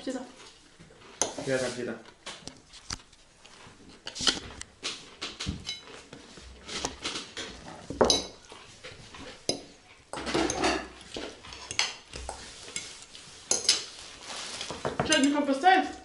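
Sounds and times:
forks clinking on ceramic plates: 0:08.0 - 0:08.4, 0:09.4 - 0:13.9, 0:15.0 - 0:15.4.

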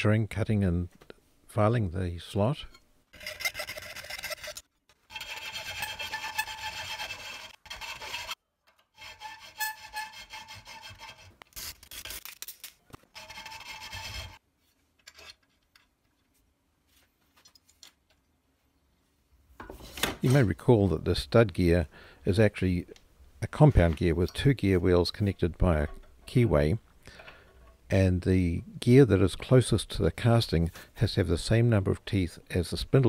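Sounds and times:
hacksaw and file scraping metal: 0:03.1 - 0:11.7, 0:13.1 - 0:14.4.

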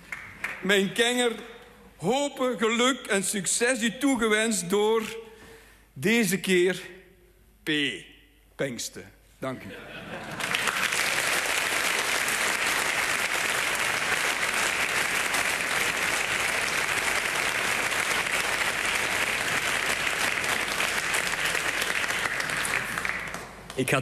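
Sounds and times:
congregation applauding: 0:00.0 - 0:01.1, 0:10.1 - 0:24.0.

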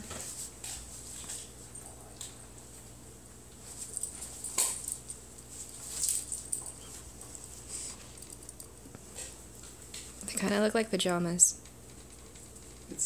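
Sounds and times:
dog scuffling and rustling: 0:03.6 - 0:09.4.

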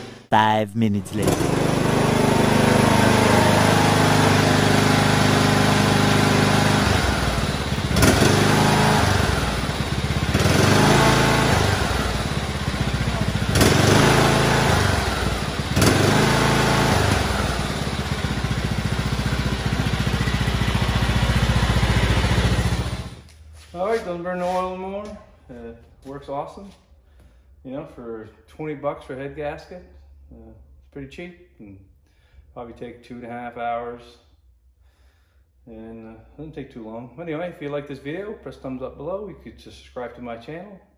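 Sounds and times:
riding mower engine running: 0:01.2 - 0:23.2.

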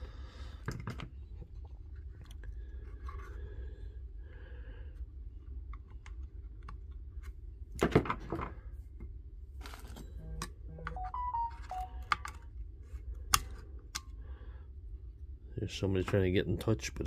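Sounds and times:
low steady hum: 0:08.6 - 0:17.0.

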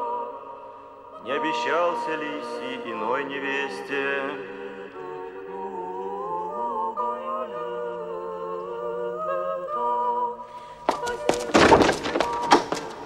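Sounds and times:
choir singing unaccompanied: 0:00.0 - 0:12.8.

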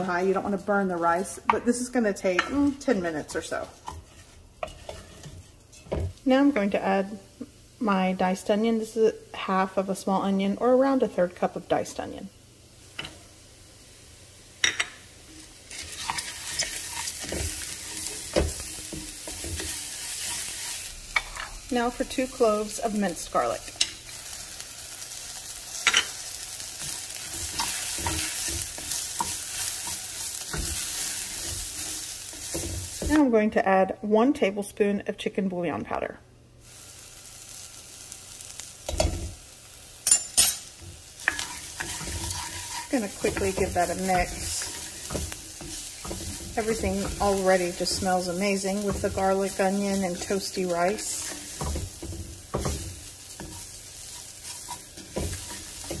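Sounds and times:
wooden spoon stirring and scraping: 0:00.0 - 0:06.7, 0:15.7 - 0:24.0, 0:26.7 - 0:33.2, 0:41.0 - 0:56.0
rice and onion sizzling in oil: 0:00.0 - 0:33.3, 0:36.6 - 0:56.0.

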